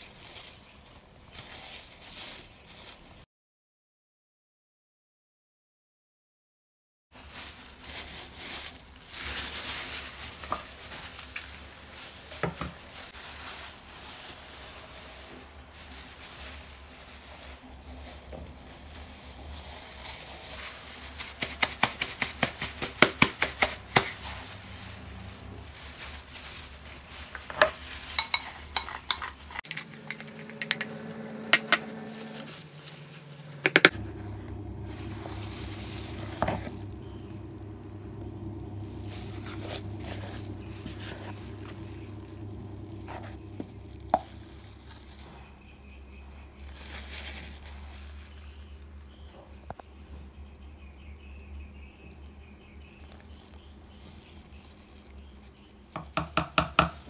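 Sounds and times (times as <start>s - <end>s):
utensil scraping mixing bowl: 27.3s - 45.6s
low steady hum: 29.6s - 55.7s.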